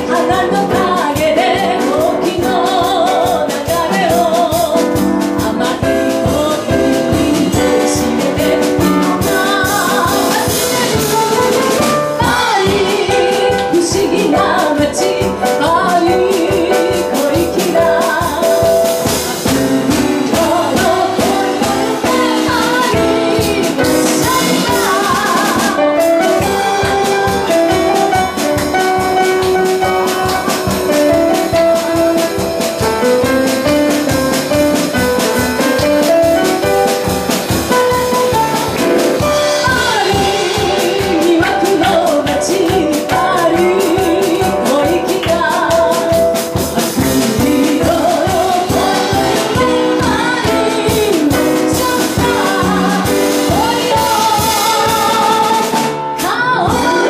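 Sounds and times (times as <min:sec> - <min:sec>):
woman singing with vibrato: 0:00.0 - 0:34.8, 0:37.9 - 0:57.0
piano: 0:00.0 - 0:57.0
steady drum beat: 0:00.0 - 0:57.0.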